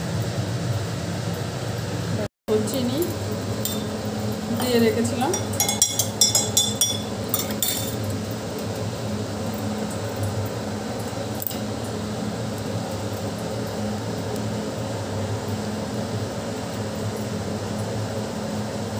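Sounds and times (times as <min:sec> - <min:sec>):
metal spoon clinking against glass: 0:05.3 - 0:08.0.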